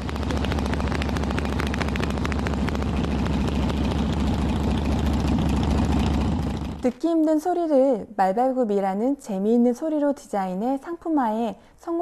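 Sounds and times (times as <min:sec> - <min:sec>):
motorcycle engine rumbling: 0:00.0 - 0:06.9.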